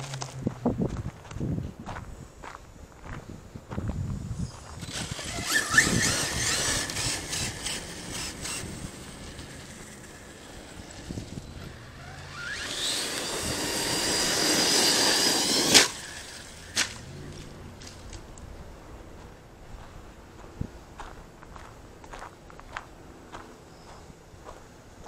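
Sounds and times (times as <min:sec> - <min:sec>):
electric motor whining: 0:04.4 - 0:18.2.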